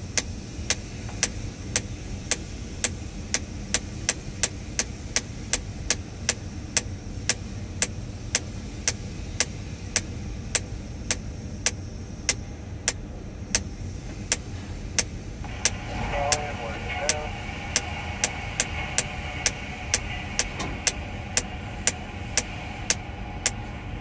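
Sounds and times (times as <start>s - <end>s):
machinery running: 14.2s - 24.0s.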